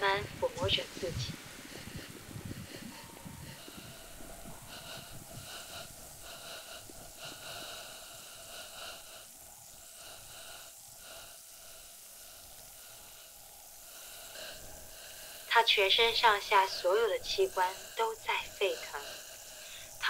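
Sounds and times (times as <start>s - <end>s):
woman panting: 0.0s - 9.3s, 14.0s - 20.0s.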